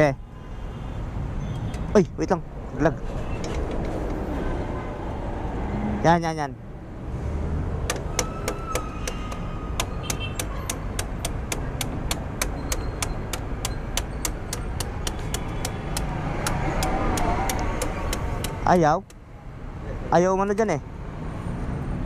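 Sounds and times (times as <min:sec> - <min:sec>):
faint street hum: 0:00.0 - 0:22.0
sharp metallic clicks: 0:07.8 - 0:19.2.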